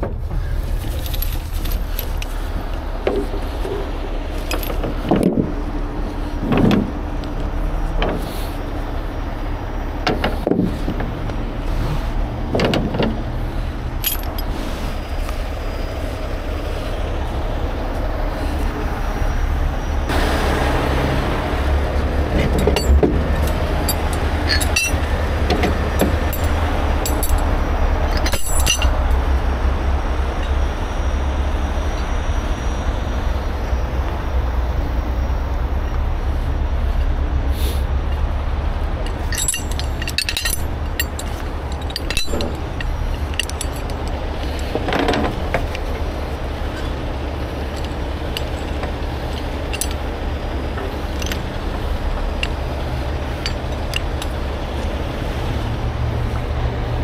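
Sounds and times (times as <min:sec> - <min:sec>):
diesel engines running: 0:00.0 - 0:57.0
chain clinking: 0:00.7 - 0:02.8, 0:03.4 - 0:05.4, 0:12.5 - 0:16.4, 0:22.3 - 0:29.2, 0:38.1 - 0:55.3.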